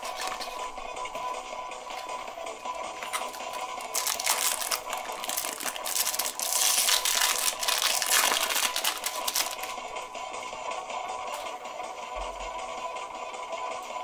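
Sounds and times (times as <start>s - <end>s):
foil pack crinkling and tearing: 0.0s - 0.6s, 3.0s - 9.8s.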